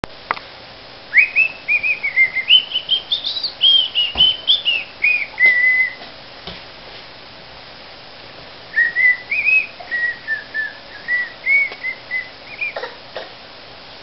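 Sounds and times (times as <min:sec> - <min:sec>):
person whistling short notes: 0:01.2 - 0:06.0, 0:08.8 - 0:12.8.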